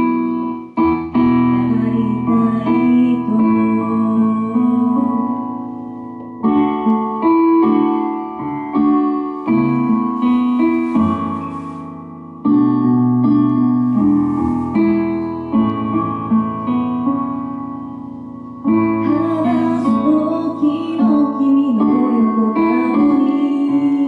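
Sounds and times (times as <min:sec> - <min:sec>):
piano chords ringing: 0:00.0 - 0:24.0.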